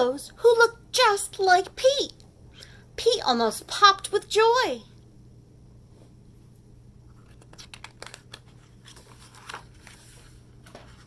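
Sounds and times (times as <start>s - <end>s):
paper pages being turned: 7.1s - 11.0s.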